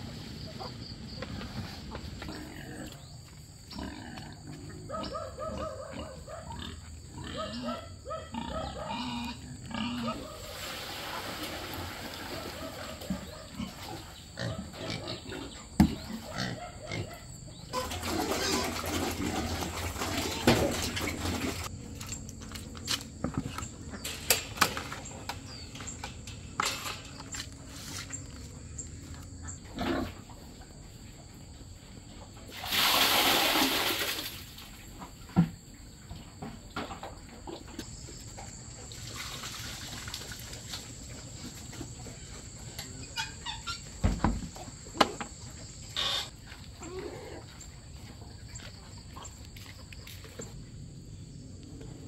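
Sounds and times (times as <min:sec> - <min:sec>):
pigs grunting: 0:02.0 - 0:10.6, 0:11.8 - 0:21.7, 0:28.0 - 0:30.5, 0:45.9 - 0:49.8
buckets knocking and clattering: 0:17.8 - 0:22.5, 0:23.1 - 0:28.2
liquid pouring and splashing: 0:32.5 - 0:34.6, 0:38.9 - 0:40.7.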